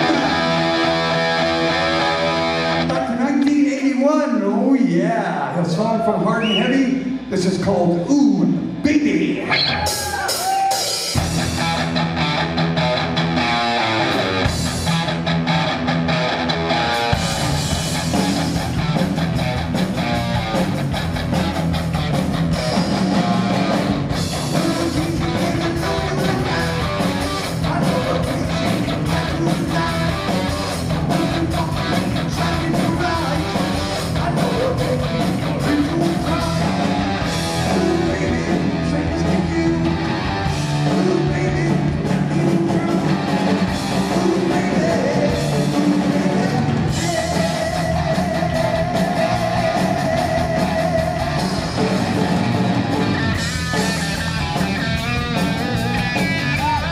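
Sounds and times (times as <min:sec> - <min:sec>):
heavy metal band playing: 0:00.0 - 0:03.6, 0:05.3 - 0:56.9
person singing: 0:24.4 - 0:52.6.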